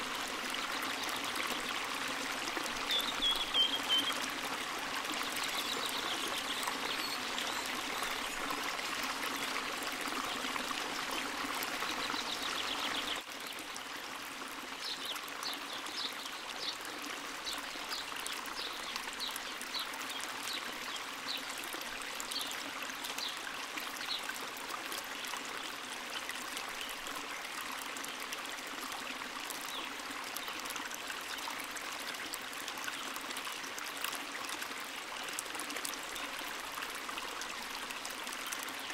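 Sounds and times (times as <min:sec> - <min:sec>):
running water: 0:00.0 - 0:38.9.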